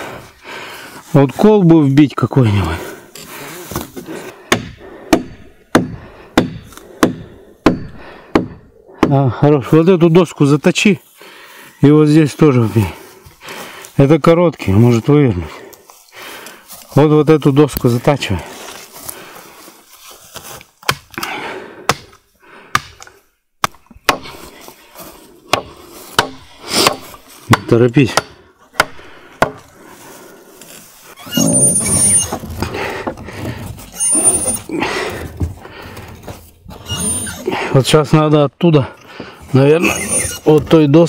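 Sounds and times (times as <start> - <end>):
axe knocking on wood: 4.5 - 9.2
rustling: 29.8 - 37.5.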